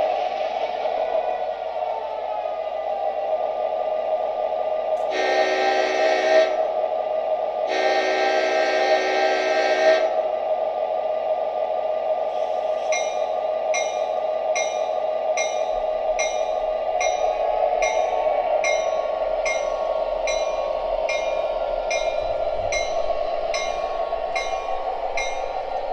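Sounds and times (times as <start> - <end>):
steady engine hum: 0.0 - 25.9
toy train horn blast: 5.0 - 6.6, 7.7 - 10.1
toy train bell ringing: 12.8 - 25.9.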